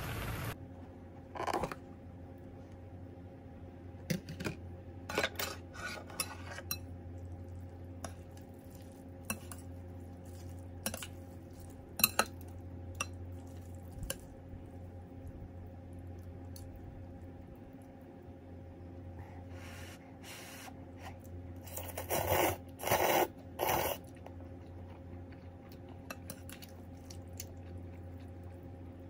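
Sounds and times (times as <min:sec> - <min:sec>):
steady low hum: 0:00.0 - 0:29.0
utensils clinking on a bowl: 0:09.2 - 0:13.7.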